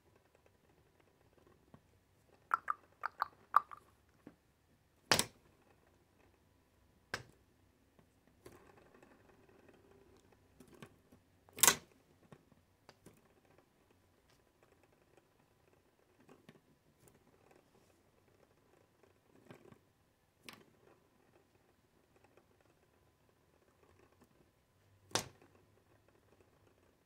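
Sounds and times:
sharp knocks and clicks: 2.5 - 3.8.

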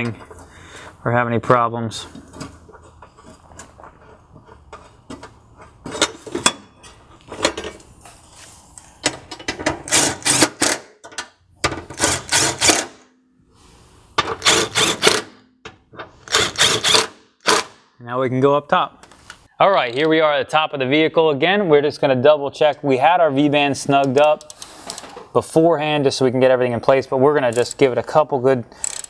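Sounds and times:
faint clicking of bolts: 24.0 - 25.2.

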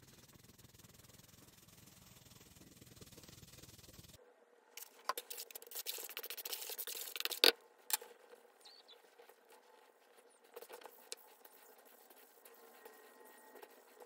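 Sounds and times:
powder and gloves crackling: 4.8 - 7.5, 8.6 - 14.0.

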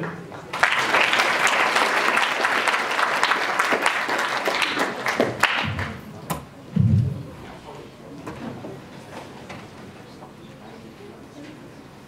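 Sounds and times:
audience applause: 0.3 - 6.4
short low thud: 5.6 - 7.6.

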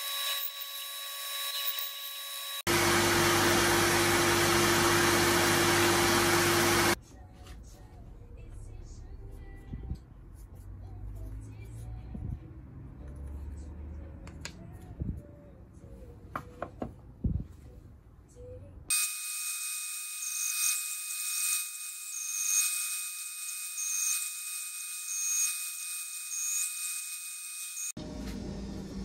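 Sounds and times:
bandsaw cutting wood: 0.0 - 7.0.

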